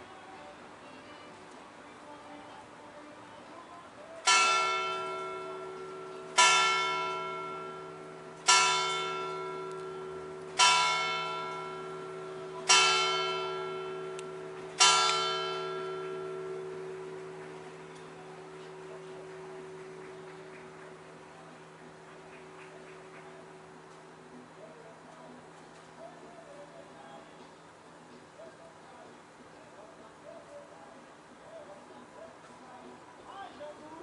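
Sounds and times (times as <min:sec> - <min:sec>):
church bell tolling: 0:04.2 - 0:21.1.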